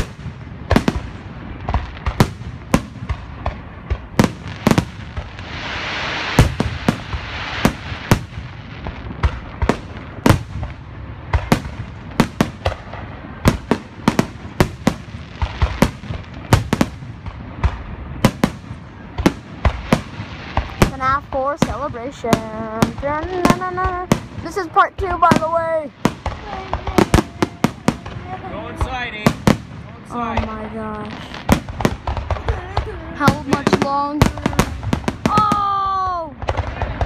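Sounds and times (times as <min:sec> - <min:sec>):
fireworks bangs: 0:00.0 - 0:37.0
fireworks hiss: 0:00.0 - 0:37.0.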